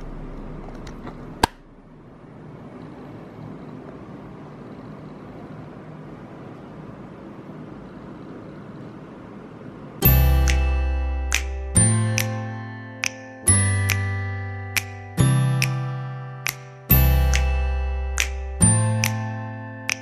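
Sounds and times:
steady background noise: 0.0s - 20.0s
background music: 10.0s - 20.0s.

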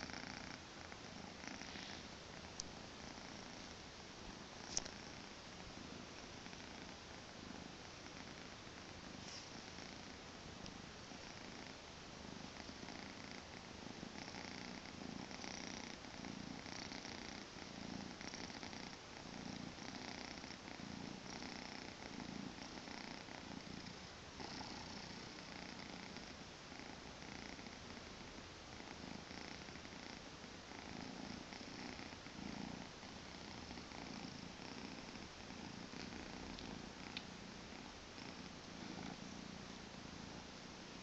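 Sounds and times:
kitten purring: 0.0s - 41.0s.

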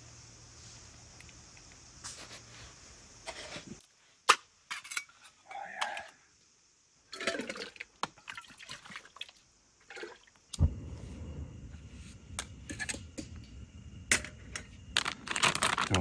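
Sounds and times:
steady low rush: 10.6s - 15.0s.

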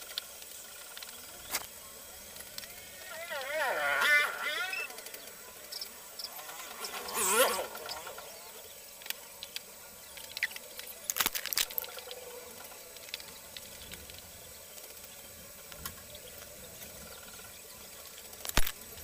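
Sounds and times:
steady hiss: 0.0s - 19.0s
small objects clicking and tapping: 8.9s - 17.0s, 18.1s - 18.8s.

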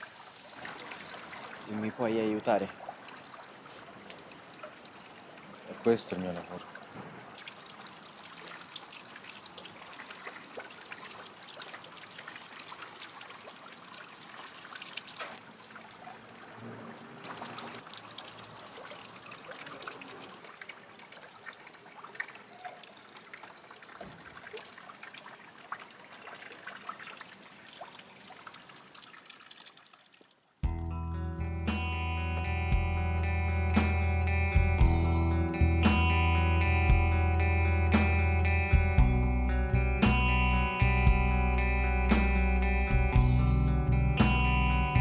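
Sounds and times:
fountain water trickling and splashing: 0.0s - 30.6s.

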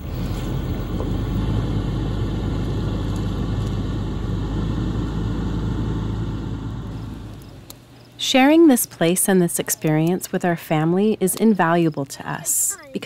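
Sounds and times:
motorhome engine low rumble: 0.0s - 8.2s.

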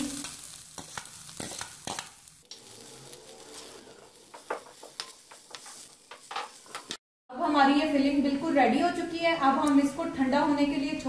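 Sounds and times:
food sizzling: 0.0s - 11.0s
spatula scraping a pan: 0.8s - 7.0s.

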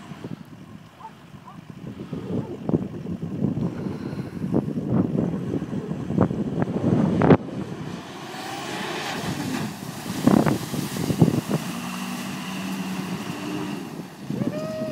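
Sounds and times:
tyres splashing water: 7.8s - 14.9s.

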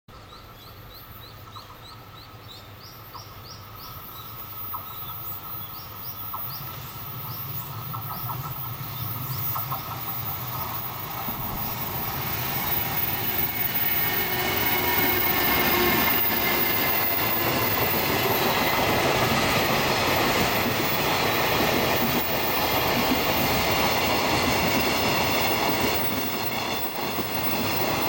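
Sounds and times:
bird chirping: 0.1s - 10.8s
freight train rumbling: 3.1s - 28.0s.

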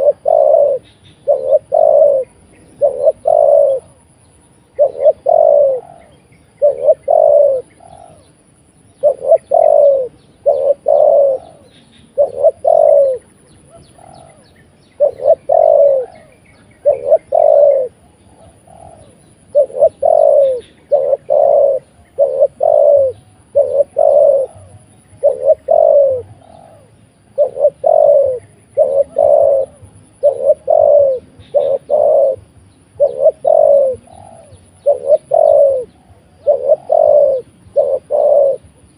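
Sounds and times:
dove cooing: 0.0s - 38.9s.

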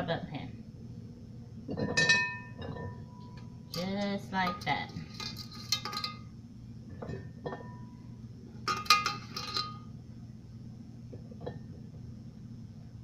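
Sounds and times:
metal cookware clinking: 1.7s - 3.1s, 3.7s - 6.3s, 8.7s - 9.9s.

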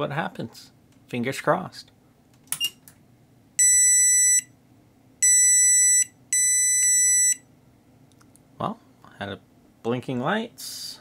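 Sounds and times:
high buzzer beeps: 3.6s - 4.5s, 5.2s - 7.4s.

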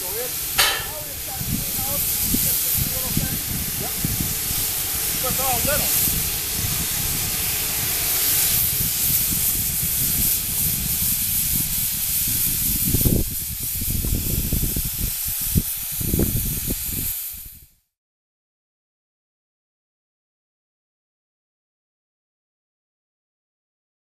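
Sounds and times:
air compressor pulsing rumble: 0.0s - 16.2s
hiss of escaping air and steam: 0.0s - 17.8s.

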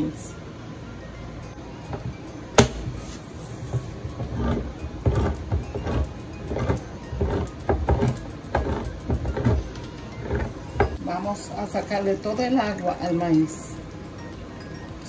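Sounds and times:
can opener grinding: 3.7s - 11.0s.

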